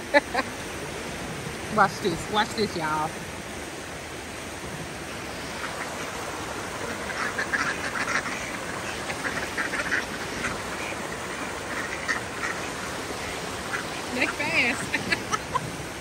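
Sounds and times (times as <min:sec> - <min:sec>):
ducks quacking: 0:05.3 - 0:15.7.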